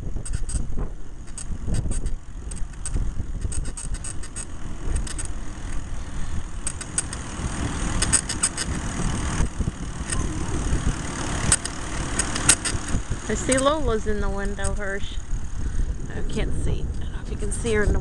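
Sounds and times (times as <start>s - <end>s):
squeaking bicycle seat: 0.0s - 5.9s
wind and road rumble: 0.0s - 18.0s.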